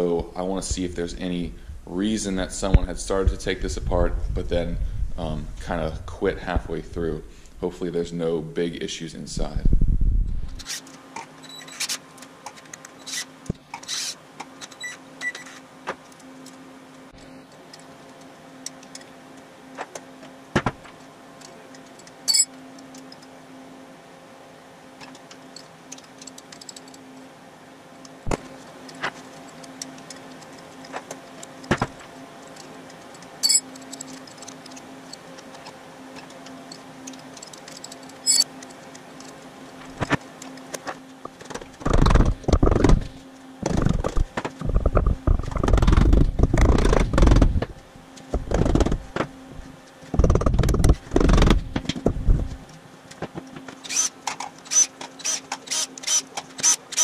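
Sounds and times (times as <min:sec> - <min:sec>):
steady low hum: 0:00.0 - 0:57.0
metallic clicks and clinks of tools: 0:32.4 - 0:39.4.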